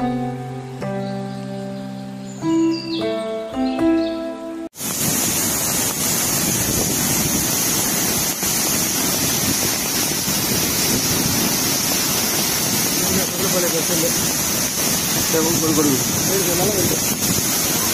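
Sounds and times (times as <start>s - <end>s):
waterfall rushing: 4.8s - 17.9s.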